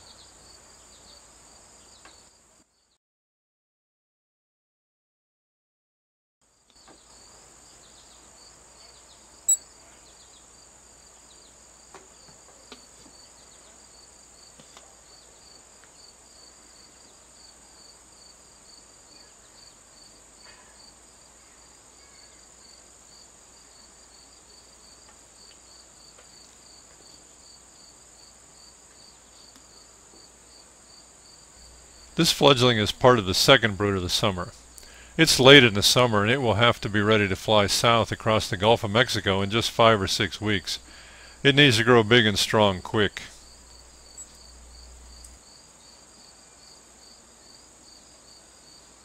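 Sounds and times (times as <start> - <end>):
insects chirring: 15.1 - 36.7, 38.6 - 48.9.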